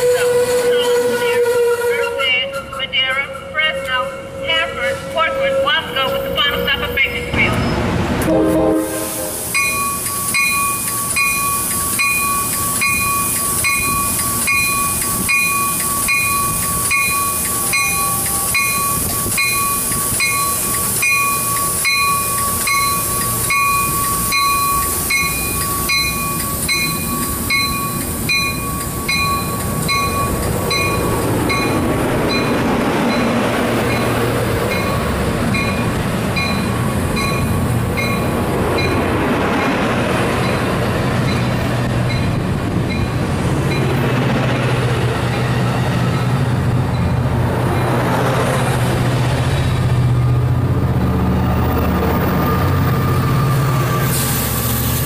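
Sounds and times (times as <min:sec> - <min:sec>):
train cars rolling: 0:00.0 - 0:55.0
train bell ringing: 0:09.4 - 0:44.2, 0:45.2 - 0:48.2, 0:52.1 - 0:55.0.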